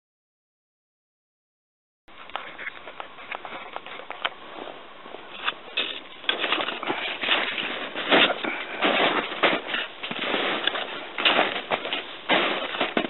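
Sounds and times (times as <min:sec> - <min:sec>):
footsteps crunching through snow: 0:03.1 - 0:13.0.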